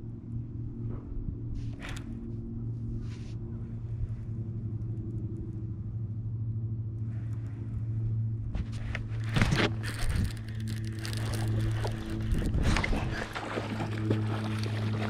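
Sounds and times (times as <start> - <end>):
low motor hum: 0.0 - 15.0
handling rustles and knocks: 8.5 - 13.2.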